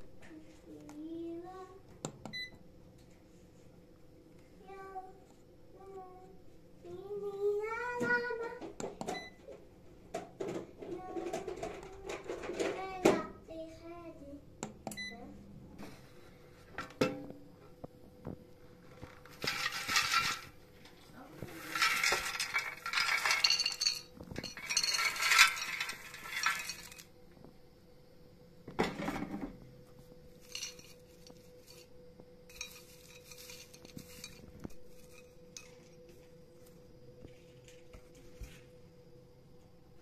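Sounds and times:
faint steady hum: 0.0s - 40.0s
seeds rattling against ceramic dish: 19.3s - 20.6s, 21.5s - 27.1s, 30.4s - 31.9s, 32.5s - 36.2s.

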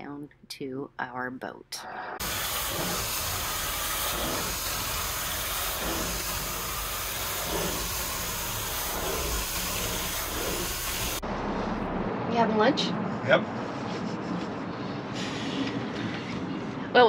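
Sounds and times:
vacuum wand sucking air and water: 2.2s - 11.2s.

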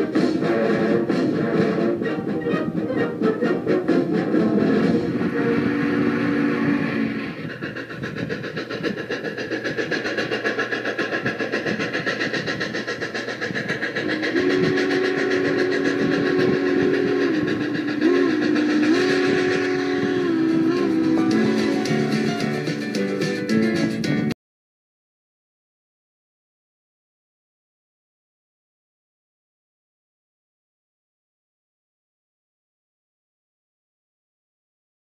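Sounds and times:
two-note train whistle: 0.0s - 7.4s, 14.1s - 22.7s
train clattering on track: 0.0s - 24.3s.

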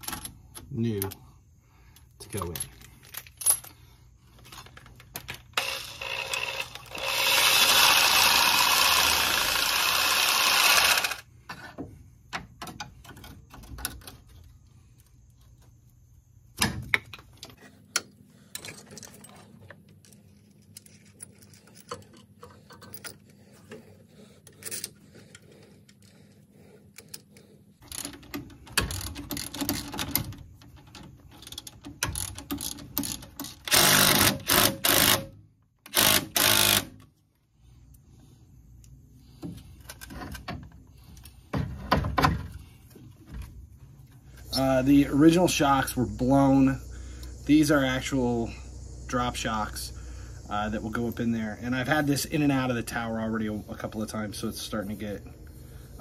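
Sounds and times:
metal tools clicking and clattering: 16.9s - 23.8s.

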